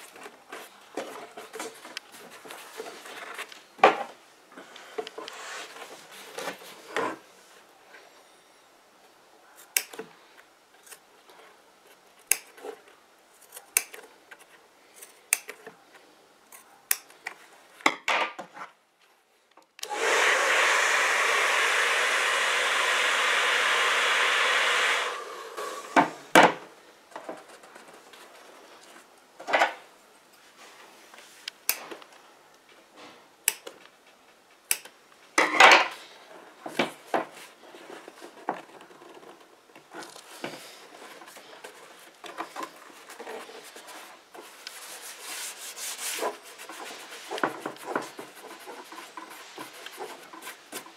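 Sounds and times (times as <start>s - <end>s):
scissors snipping leather: 12.3s - 12.6s, 13.4s - 14.0s
heat gun blowing: 19.8s - 26.4s.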